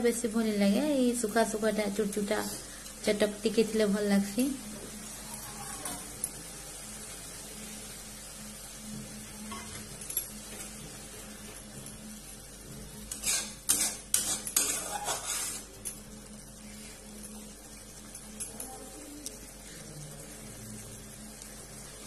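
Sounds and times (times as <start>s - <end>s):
curry sizzling faintly: 0.0s - 22.0s
metal spatula scraping a pan: 12.8s - 15.8s.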